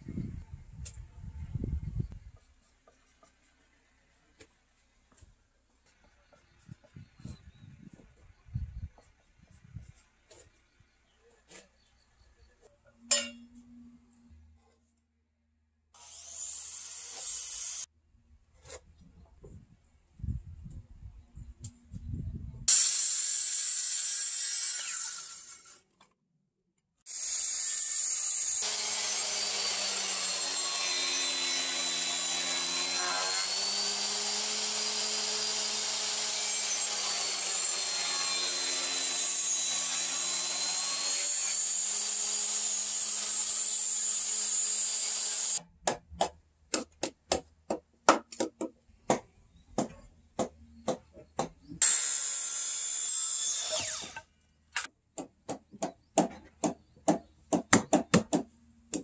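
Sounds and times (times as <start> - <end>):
circular saw cutting: 16.0 - 17.9, 22.7 - 25.8, 27.1 - 45.6, 51.8 - 54.9
electric hand planer running: 28.6 - 41.1.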